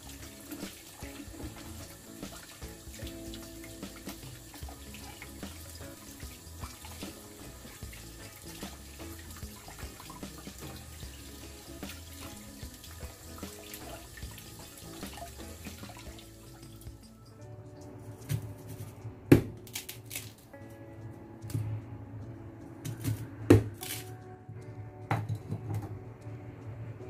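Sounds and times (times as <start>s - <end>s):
tap water splashing: 0.0s - 18.5s
quiet background music: 0.0s - 27.0s.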